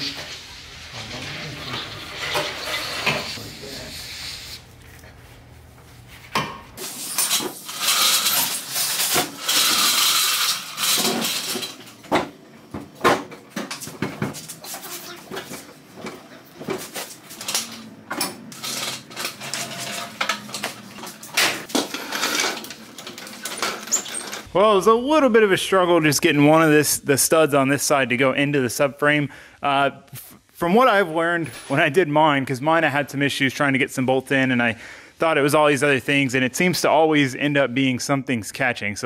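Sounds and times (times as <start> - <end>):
metal tools clanking and rattling: 6.8 - 12.3, 15.3 - 24.5.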